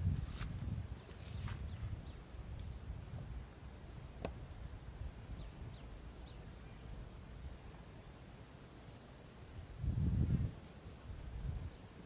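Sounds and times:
faint bird chirps: 0:05.3 - 0:07.4.

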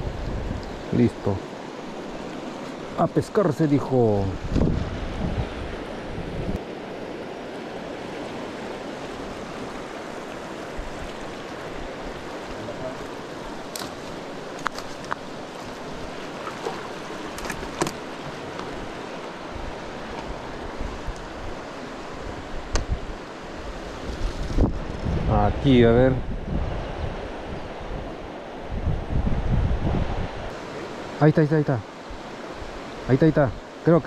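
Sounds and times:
river water rushing below a weir: 0:01.2 - 0:23.8.

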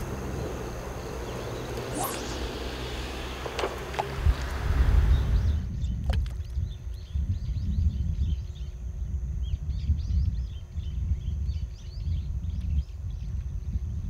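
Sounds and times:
small birds chirping: 0:00.0 - 0:13.7.

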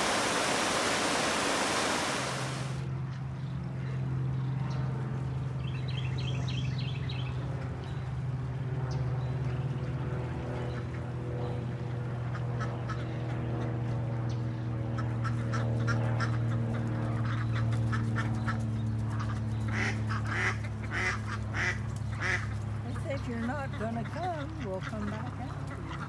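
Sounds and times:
ducks quacking: 0:10.7 - 0:14.0, 0:14.8 - 0:26.0.

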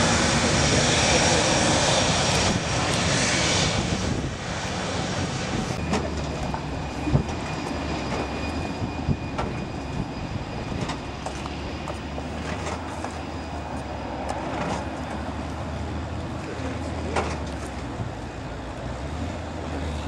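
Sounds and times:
high turbine whine: 0:00.0 - 0:16.8
low propeller drone: 0:00.0 - 0:20.0.

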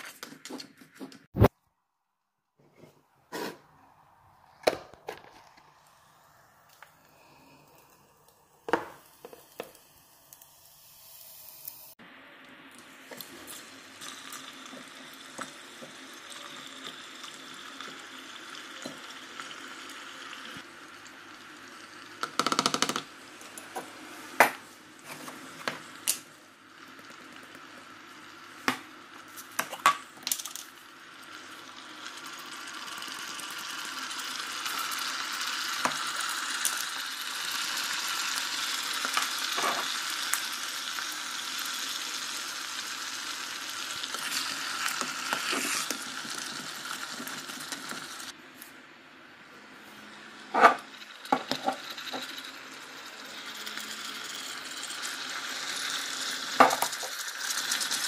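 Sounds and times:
plastic containers knocking and clicking: 0:22.2 - 0:23.1.

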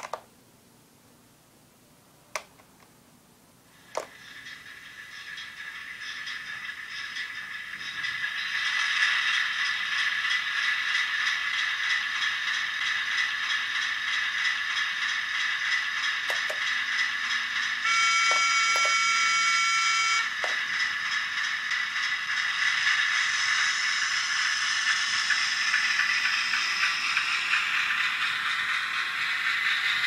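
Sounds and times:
model train motor whirring: 0:03.8 - 0:30.0
fine rhythmic clatter: 0:03.9 - 0:30.0
model train horn: 0:17.8 - 0:20.4.

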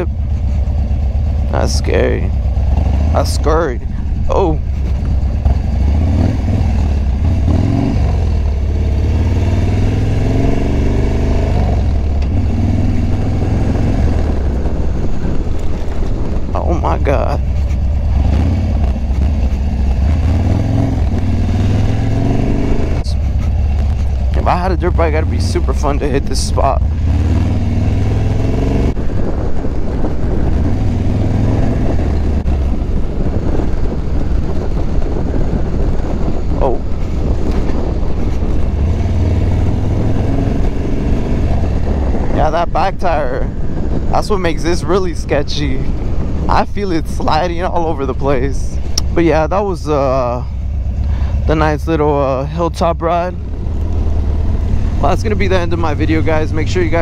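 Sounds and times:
motorcycle engine running: 0:00.0 - 0:57.0
rattle from bumpy ground: 0:00.2 - 0:05.8.

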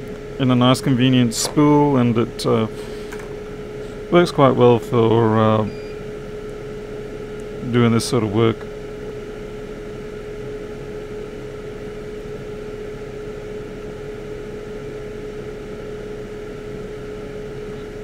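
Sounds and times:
machine hum: 0:00.0 - 0:18.0.

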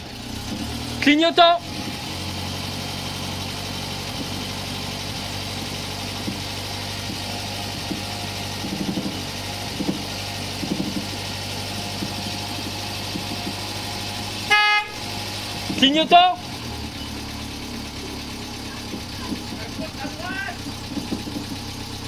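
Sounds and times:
car engine idling: 0:00.0 - 0:22.0
small knocks and muffled clunks: 0:05.6 - 0:07.2, 0:07.8 - 0:11.2, 0:12.0 - 0:13.7, 0:18.8 - 0:19.8, 0:20.9 - 0:21.8.

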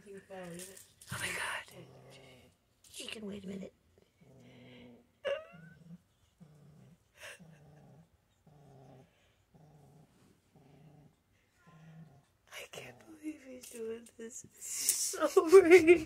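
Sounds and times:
kitten growling: 0:04.1 - 0:13.2.

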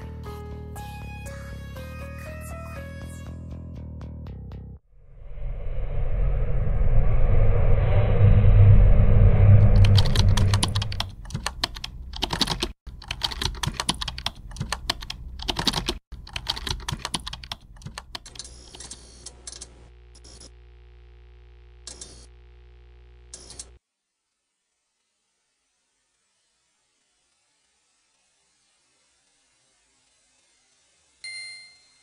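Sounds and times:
low rumble: 0:04.9 - 0:11.2
typing on a computer keyboard: 0:09.8 - 0:18.8.

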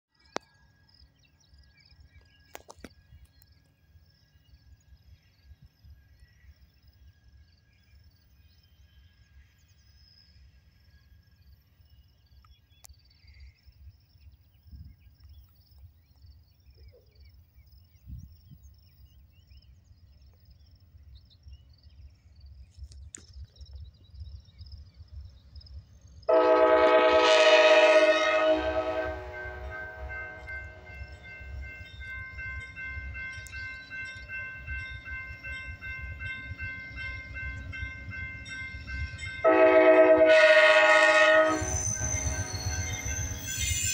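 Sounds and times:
locomotive horn chord: 0:26.3 - 0:31.2, 0:39.4 - 0:43.8.

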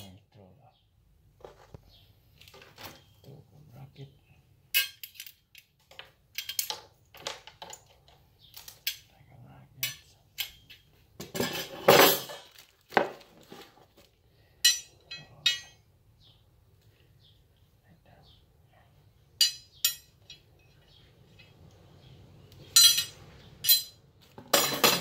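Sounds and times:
metal rail pieces clinking: 0:04.7 - 0:08.0, 0:08.6 - 0:09.1, 0:09.8 - 0:12.5, 0:14.6 - 0:15.8, 0:19.4 - 0:21.6, 0:22.7 - 0:25.0.

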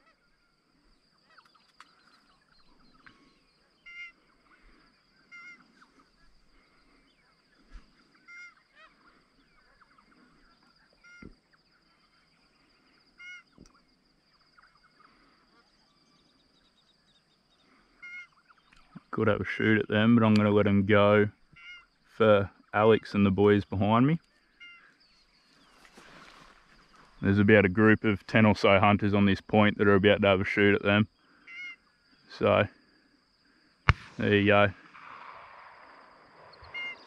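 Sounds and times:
distant geese honking: 0:02.0 - 0:16.3, 0:17.6 - 0:19.8, 0:21.4 - 0:23.3, 0:24.2 - 0:27.4, 0:31.2 - 0:32.6, 0:33.9 - 0:37.0.

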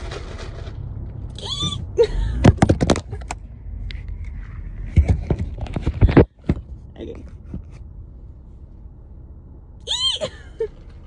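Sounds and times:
short rising squeak: 0:01.4 - 0:02.0.

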